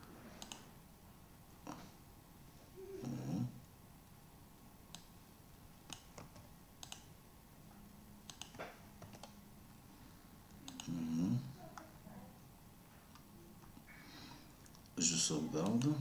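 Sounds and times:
mouse and keyboard clicks: 5.9 - 7.1, 8.3 - 9.4, 10.6 - 11.0.

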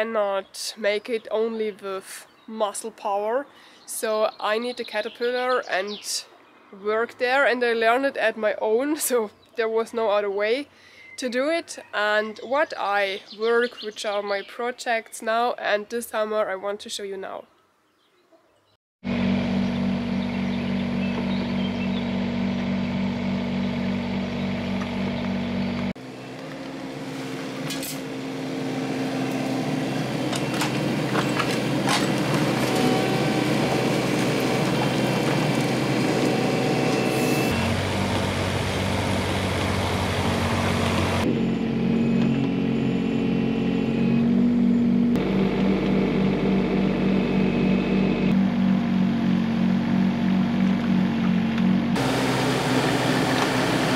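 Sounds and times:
diesel engine running: 19.0 - 53.9.

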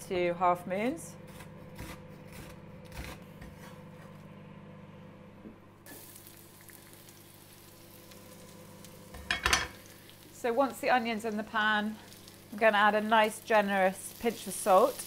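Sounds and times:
onion sizzling in hot oil: 5.9 - 15.0.

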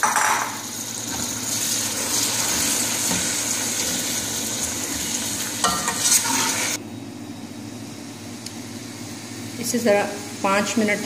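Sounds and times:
meat sizzling in hot oil: 0.5 - 6.8.

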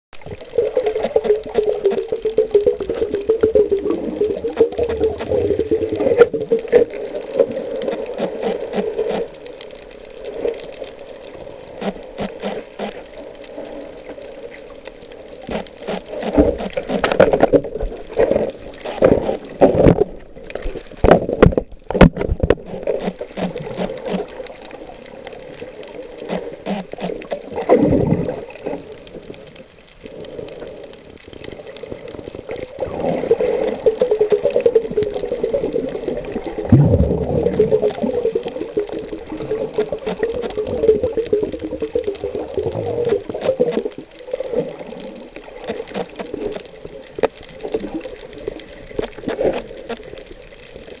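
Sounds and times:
muffled water noise: 0.1 - 51.0
underwater clicks and knocks: 15.5 - 25.4, 33.8 - 44.7.

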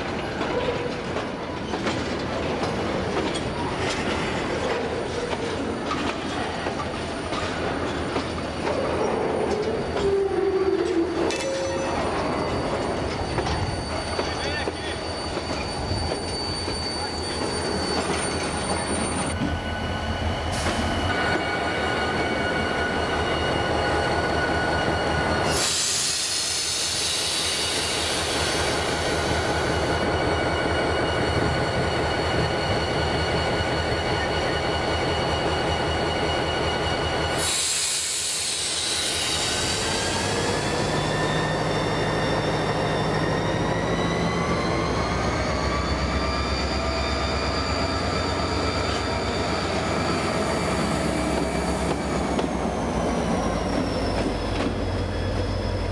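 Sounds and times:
train wagons rumbling: 0.0 - 35.8, 47.7 - 55.9
train wheels squealing on rails: 0.0 - 55.9.

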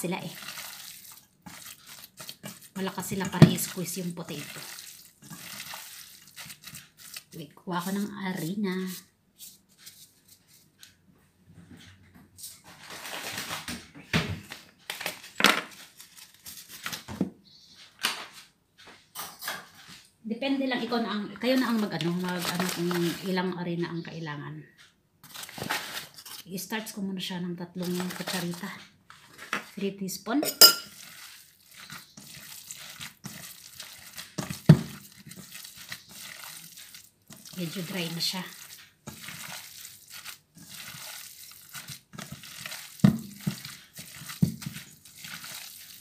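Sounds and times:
hands squelching meat mixture: 0.0 - 10.6, 21.4 - 23.4, 27.8 - 29.9, 30.8 - 46.0
plastic packaging crinkling: 12.7 - 13.8, 14.5 - 17.1, 21.4 - 23.4, 25.2 - 26.4, 27.8 - 28.7, 30.9 - 46.0.

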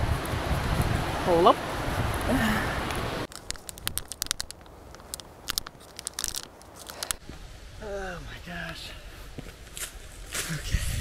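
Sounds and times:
crunchy bites: 3.3 - 7.2
wrapper crinkling: 3.3 - 7.2.

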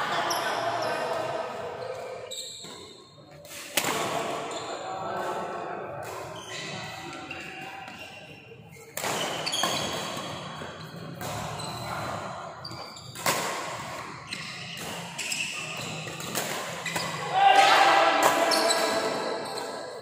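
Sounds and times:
rackets hitting shuttlecock: 2.0 - 4.5, 8.8 - 20.0.

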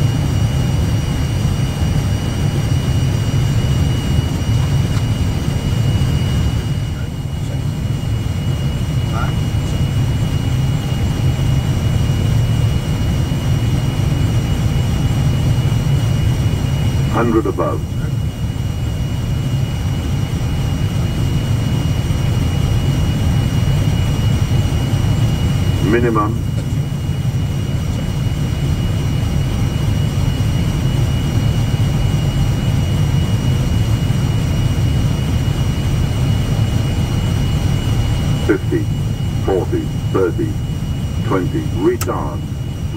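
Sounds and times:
jet engines and airflow rumble: 0.0 - 42.9
faint high whine: 20.8 - 42.9.

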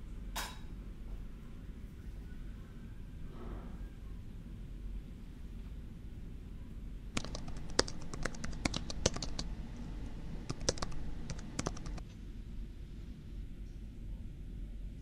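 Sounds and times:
low steady hum: 0.0 - 15.0
laptop keyboard typing: 7.2 - 12.0.

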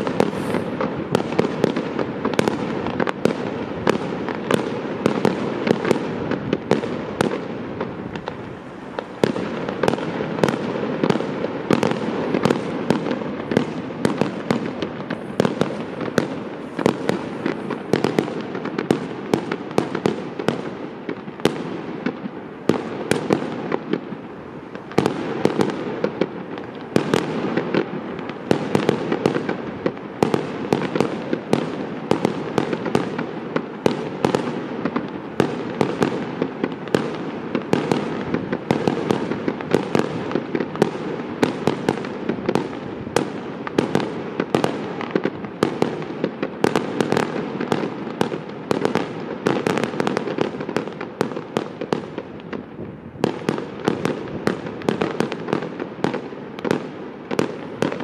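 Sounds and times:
firework shells bursting: 0.0 - 3.2.

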